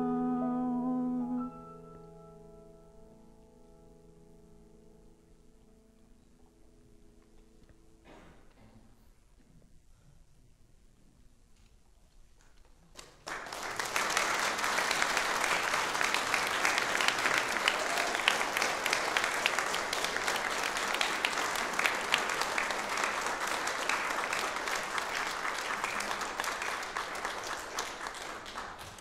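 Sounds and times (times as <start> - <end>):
congregation applauding: 12.9 - 29.0.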